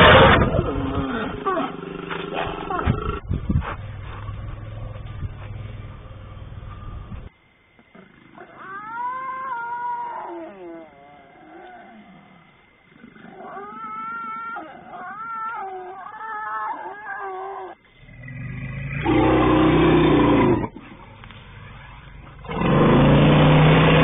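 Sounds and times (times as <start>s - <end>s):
animal wavering cries: 8.0s - 12.2s, 13.2s - 17.8s.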